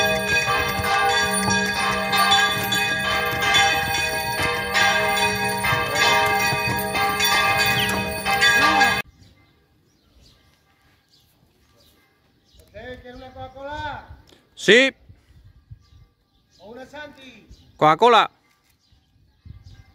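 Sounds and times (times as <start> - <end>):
church bells ringing: 0.0 - 9.0.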